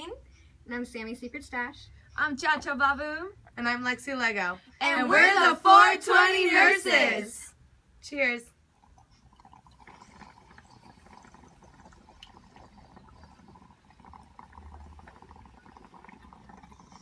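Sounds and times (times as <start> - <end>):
water bubbling in glass pipes: 8.5 - 17.0.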